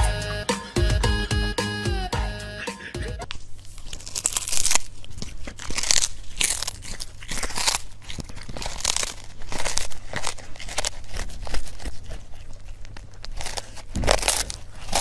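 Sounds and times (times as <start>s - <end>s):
kitten chewing fish: 3.2s - 15.0s.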